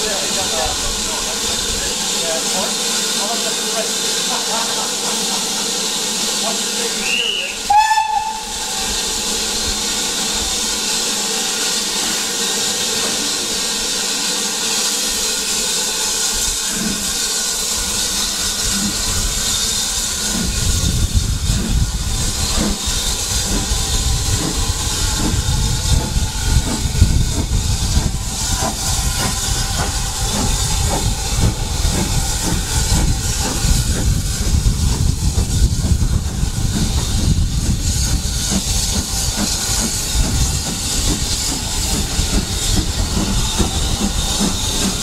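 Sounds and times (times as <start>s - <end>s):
hiss of escaping steam: 0.0s - 45.0s
steam locomotive whistle: 6.9s - 9.0s.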